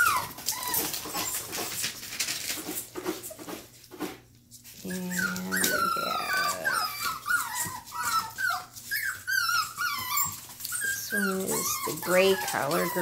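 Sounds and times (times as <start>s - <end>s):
puppies whining and yipping: 0.0s - 2.2s, 4.8s - 13.0s.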